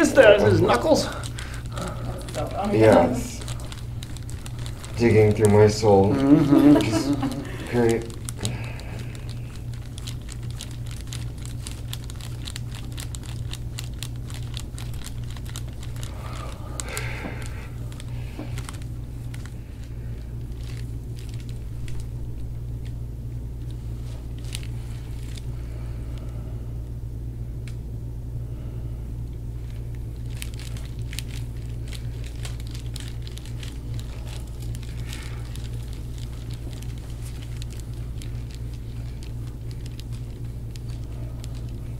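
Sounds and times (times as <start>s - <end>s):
skin and cloth rubbing: 0.0s - 22.2s, 30.1s - 41.9s
soft crinkling: 0.0s - 26.3s, 29.3s - 41.9s
steady low hum: 0.0s - 41.9s.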